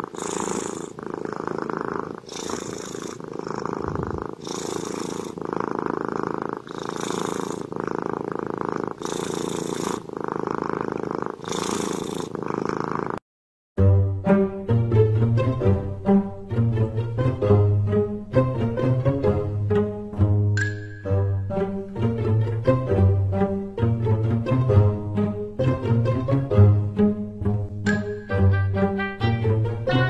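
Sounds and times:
dog snoring: 0:00.0 - 0:13.2
bowed-string music: 0:13.8 - 0:30.0.

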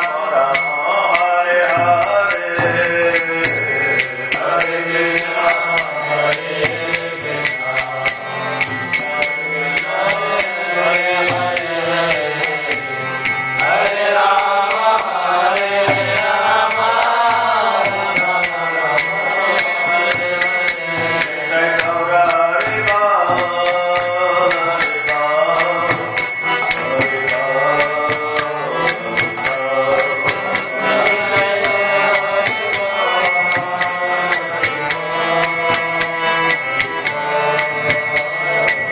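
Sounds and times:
man chanting a melody: 0:00.0 - 0:12.9
hand cymbals ringing: 0:00.0 - 0:38.9.

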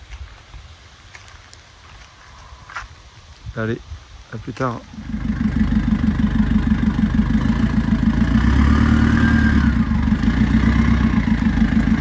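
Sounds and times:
diesel van engine idling: 0:04.9 - 0:12.0.

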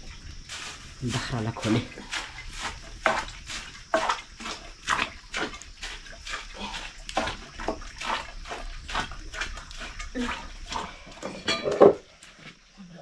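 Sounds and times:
stick stirring wet mix in pot: 0:00.0 - 0:12.7.

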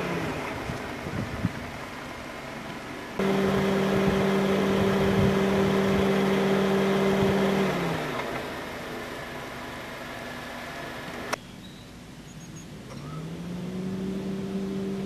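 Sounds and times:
motor humming: 0:03.2 - 0:08.6.

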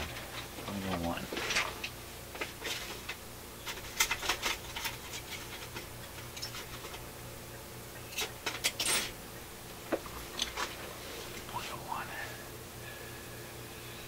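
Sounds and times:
faint steady hum: 0:00.0 - 0:14.0
small parts clicking and rattling: 0:01.5 - 0:07.0, 0:08.1 - 0:09.2.

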